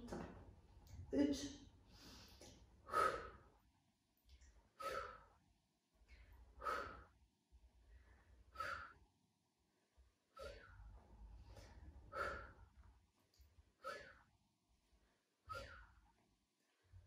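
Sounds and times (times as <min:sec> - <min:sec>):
woman's breathy exhalations: 0:06.6 - 0:07.1, 0:08.5 - 0:09.0, 0:13.8 - 0:14.3, 0:15.5 - 0:16.0.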